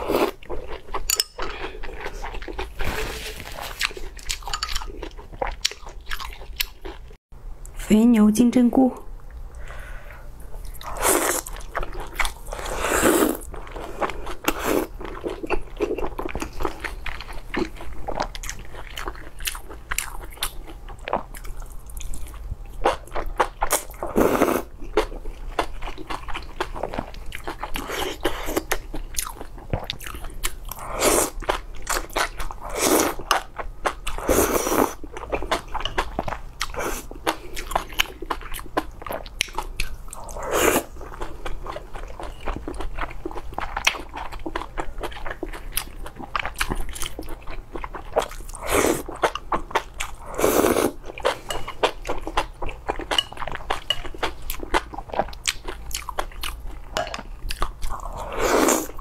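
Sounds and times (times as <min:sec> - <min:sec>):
slurping noodles: 0:12.4 - 0:14.9
chewing with wet mouth clicks: 0:35.0 - 0:40.3, 0:51.0 - 0:58.1.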